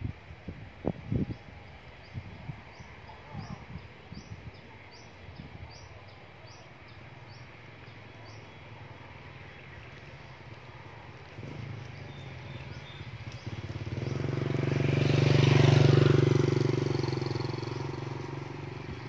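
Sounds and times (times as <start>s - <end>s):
motorcycle engine passing by: 7.2s - 19.0s.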